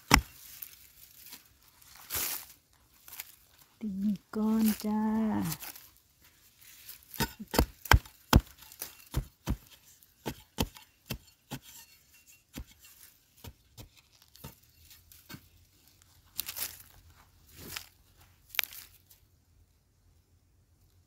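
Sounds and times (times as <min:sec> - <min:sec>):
digging tool striking stony soil: 0:00.0 - 0:00.7, 0:07.1 - 0:15.5
scraping and loose earth: 0:00.0 - 0:19.3.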